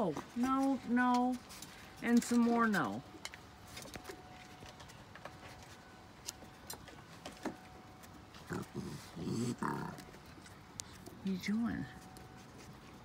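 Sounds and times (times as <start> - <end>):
raccoons clicking on wooden deck: 0.0 - 8.8
raccoon vocal sound: 8.4 - 10.1.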